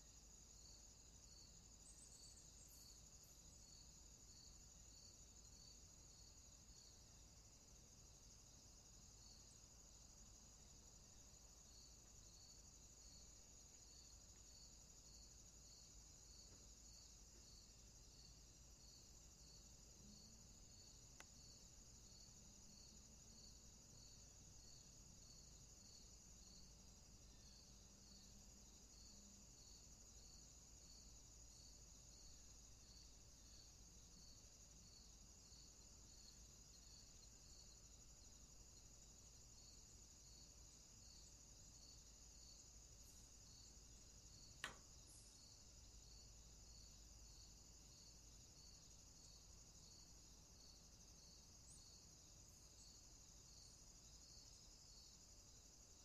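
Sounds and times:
insect chorus chirring: 0:00.0 - 0:56.0
sharp click: 0:44.6 - 0:44.8.

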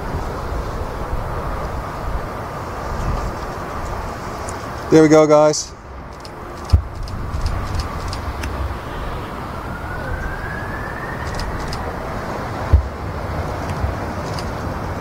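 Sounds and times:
jet engines roaring: 0:00.0 - 0:15.0
rising engine whine: 0:05.7 - 0:15.0.

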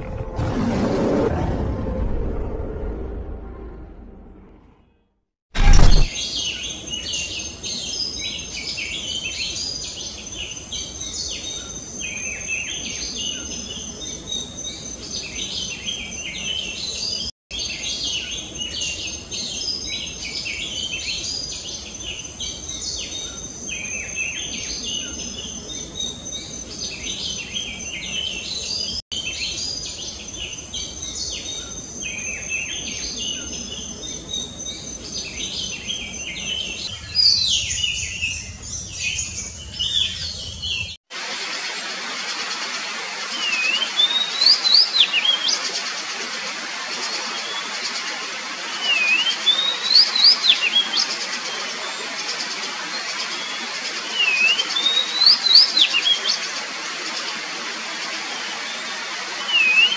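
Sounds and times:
magpie-robin singing whistled phrases: 0:59.5 - 0:59.9.

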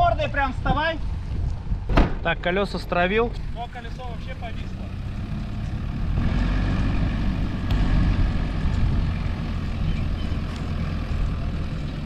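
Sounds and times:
car engine running hard: 0:03.4 - 0:12.0.

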